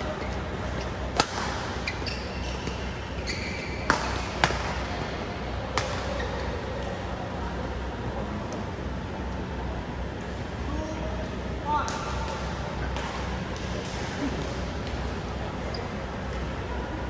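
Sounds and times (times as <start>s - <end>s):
shoes squeaking on court: 0.1s - 4.3s, 15.6s - 16.2s
racket hitting shuttlecock: 1.1s - 2.8s, 3.8s - 4.8s, 5.7s - 6.2s.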